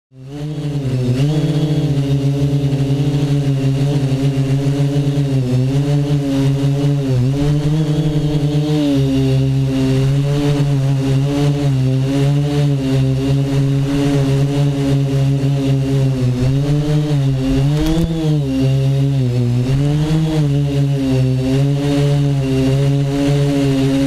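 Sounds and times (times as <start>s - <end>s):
drone motors and propellers buzzing: 0.1s - 24.0s.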